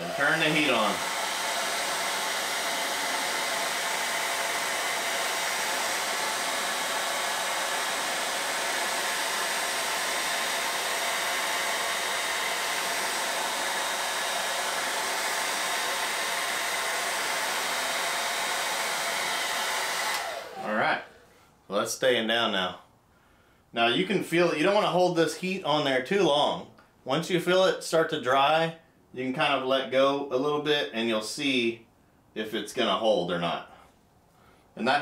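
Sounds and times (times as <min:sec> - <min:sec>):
hair dryer running: 0:00.0 - 0:21.2.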